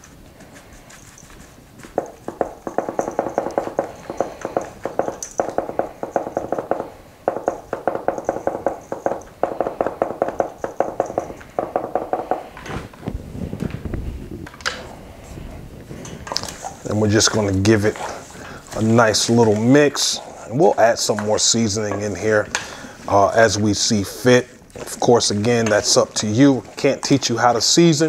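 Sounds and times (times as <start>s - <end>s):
quiet rustle: 0.0s - 2.6s.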